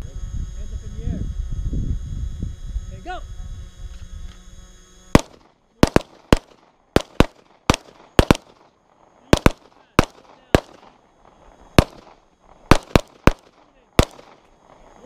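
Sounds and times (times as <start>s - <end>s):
pistol shots with echo: 5.2s - 8.7s, 9.3s - 11.0s, 11.8s - 14.4s.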